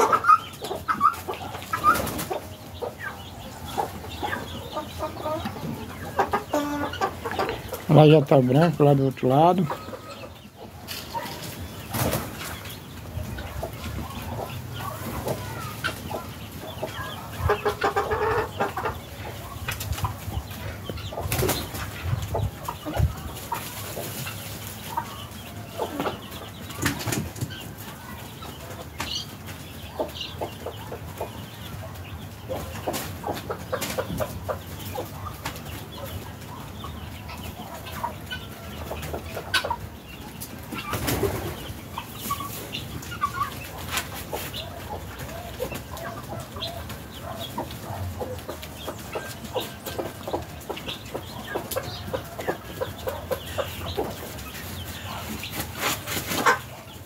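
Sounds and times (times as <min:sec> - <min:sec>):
fowl calling and clucking: 0:00.0 - 0:57.0
guineafowl wings flapping: 0:40.7 - 0:41.6.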